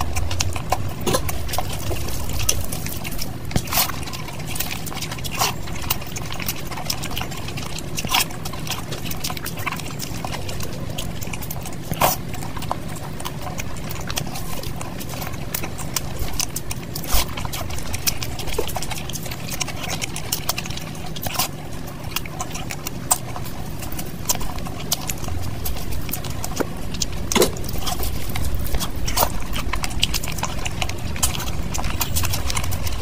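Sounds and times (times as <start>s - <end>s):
fingers squelching sticky rice: 0.0s - 33.0s
steady low hum: 0.0s - 33.0s.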